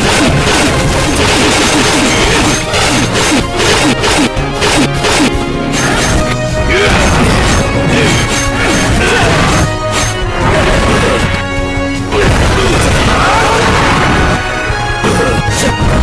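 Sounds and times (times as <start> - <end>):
punches and crashes: 0.0 - 11.3
dramatic background music: 0.0 - 16.0.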